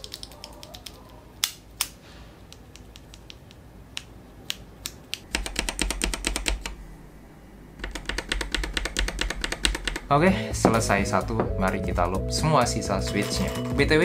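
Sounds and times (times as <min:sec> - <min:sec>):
rapid keypresses on keyboard: 0:00.0 - 0:01.1, 0:05.2 - 0:06.8, 0:07.8 - 0:10.1
mechanical keyboard switch clicks: 0:02.5 - 0:06.8.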